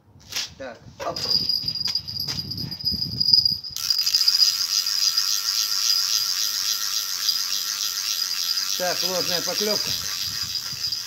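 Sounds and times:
bite alarm bell jingling: 1.2 - 11.0
fishing reel whirring: 3.2 - 11.0.

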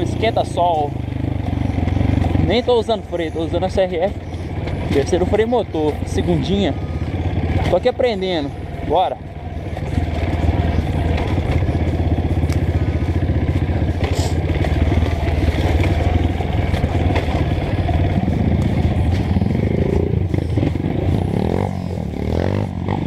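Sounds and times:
motorcycle engine running: 0.0 - 23.0
bike clattering over rough ground: 1.9 - 6.5, 7.4 - 19.6.

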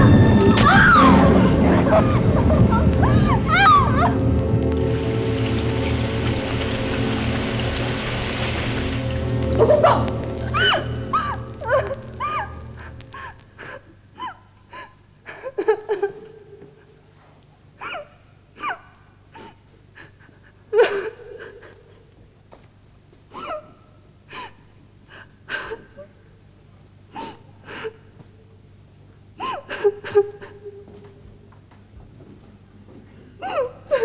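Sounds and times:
steady low hum: 0.0 - 34.0
woman gasping and whimpering: 3.0 - 4.2.

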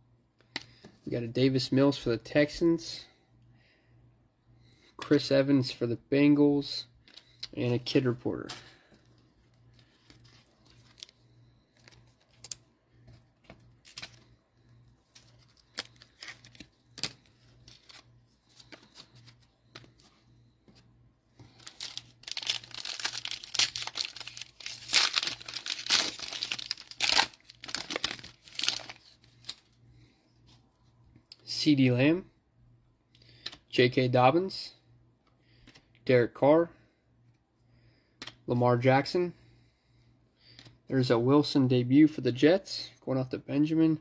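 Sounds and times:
plastic wrapper tearing and crinkling: 21.5 - 29.6.

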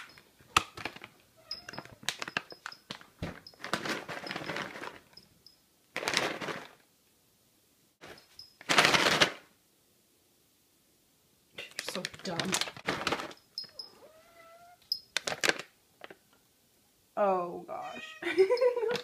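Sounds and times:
bag of cat treats shaken: 1.8 - 5.2, 5.9 - 6.8, 8.0 - 9.5, 11.7 - 13.4, 15.1 - 15.7.

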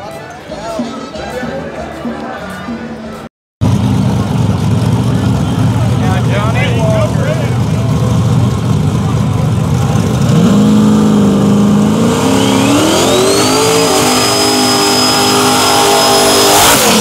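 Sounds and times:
truck engine revving: 3.6 - 17.0
turbo whine: 9.8 - 17.0.

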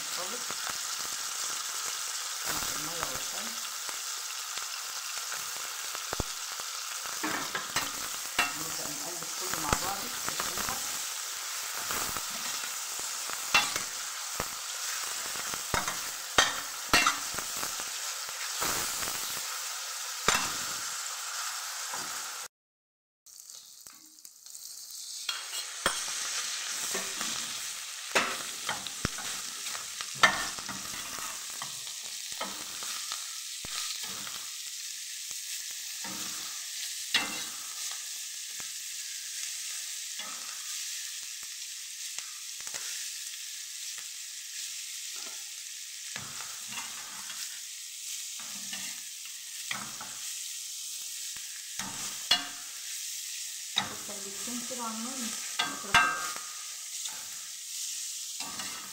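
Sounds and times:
offal sizzling in a frying pan: 0.0 - 22.5, 23.3 - 58.9
spatula scraping and knocking pan: 25.3 - 26.2, 28.1 - 33.0, 37.2 - 37.6.

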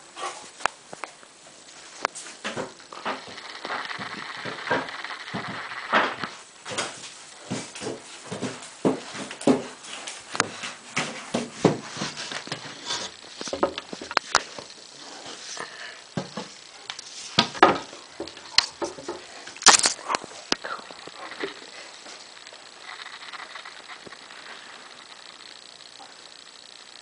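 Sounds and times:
sharp clicks: 19.6 - 21.2.

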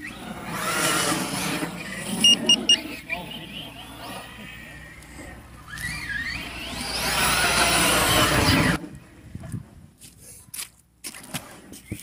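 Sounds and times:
rc car motor whine: 0.0 - 8.8
footsteps and scuffs: 10.0 - 12.0.

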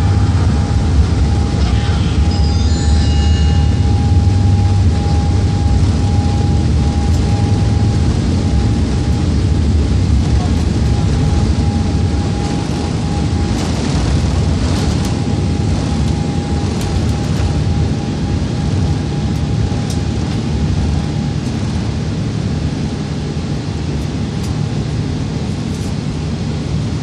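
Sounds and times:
faint steady whine: 0.0 - 27.0
jet engines rumbling: 0.0 - 27.0
faint clicks in cabin: 19.3 - 20.4, 24.0 - 24.6.

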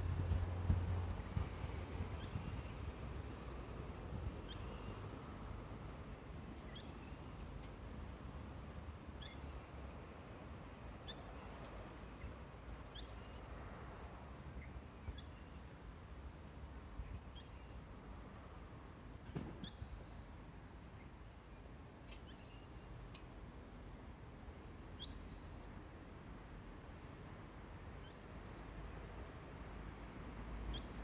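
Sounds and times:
low wind rumble: 0.0 - 6.8
soft thump: 19.3 - 19.7.

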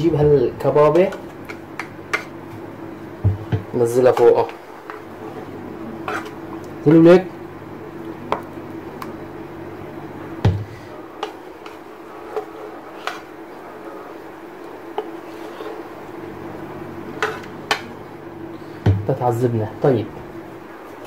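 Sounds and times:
low hum: 0.0 - 3.8
spatula scraping a frying pan: 4.9 - 6.4, 11.2 - 13.4, 15.0 - 15.9, 17.1 - 17.6.

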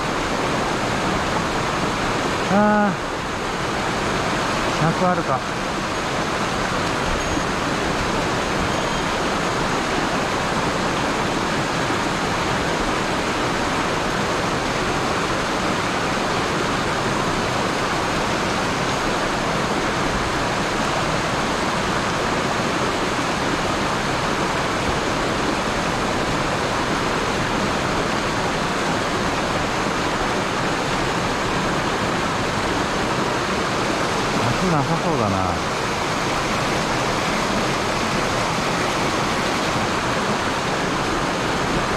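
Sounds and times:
stream rushing over rocks: 0.0 - 41.9.

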